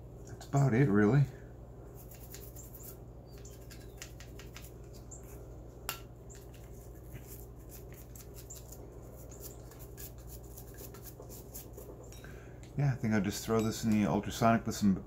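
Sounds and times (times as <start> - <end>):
steady low hum: 0.0 - 15.0
brush scrubbing metal: 2.0 - 4.8, 6.3 - 12.1.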